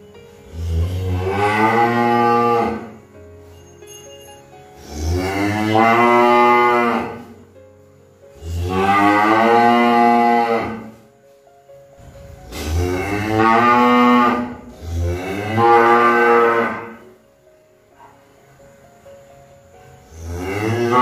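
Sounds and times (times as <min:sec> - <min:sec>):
cow mooing: 0:00.4 - 0:03.0, 0:04.8 - 0:07.3, 0:08.4 - 0:11.0, 0:12.5 - 0:17.0, 0:20.1 - 0:21.0.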